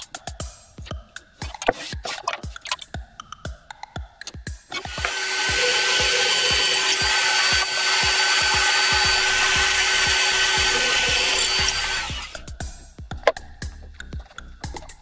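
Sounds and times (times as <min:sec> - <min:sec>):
drill press drilling wood: 0:04.7 - 0:12.4.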